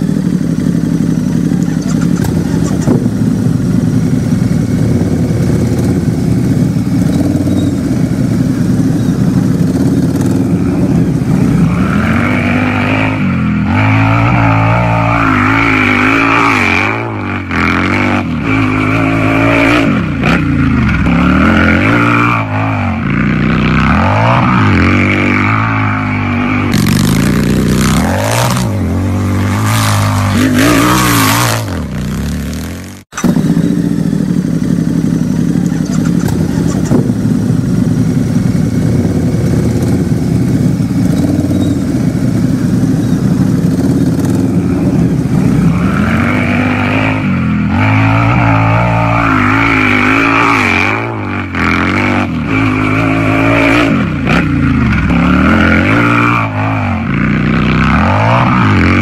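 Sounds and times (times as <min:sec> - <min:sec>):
motorcycle engine idling and revving: 0:00.0 - 0:59.0.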